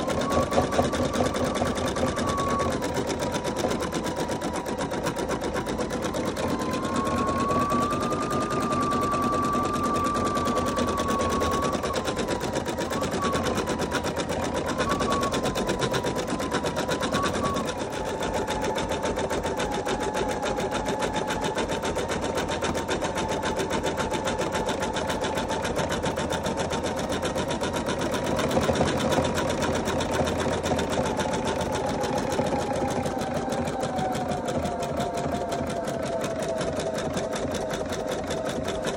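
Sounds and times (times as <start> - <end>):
motor whine: 0.0 - 38.9.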